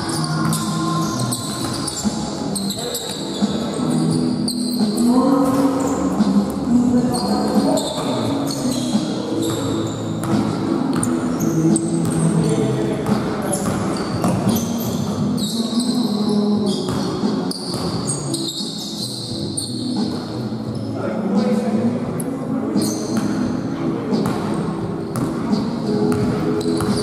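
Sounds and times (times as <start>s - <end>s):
shoe squeaks: 0.0s - 21.0s, 22.8s - 23.2s, 25.0s - 27.0s
voices echoing: 0.0s - 27.0s
basketball bouncing on court: 0.2s - 2.2s, 4.9s - 6.2s, 11.9s - 15.2s, 16.8s - 18.1s, 24.1s - 27.0s.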